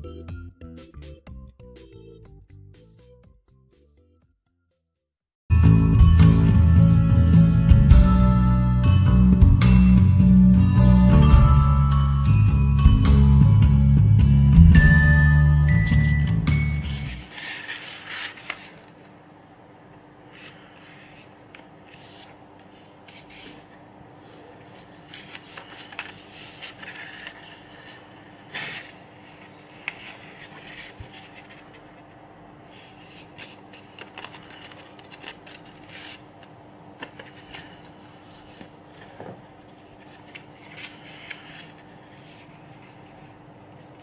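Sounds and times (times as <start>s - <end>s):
paper rustling and creasing: 16.8s - 19.2s, 20.3s - 43.3s.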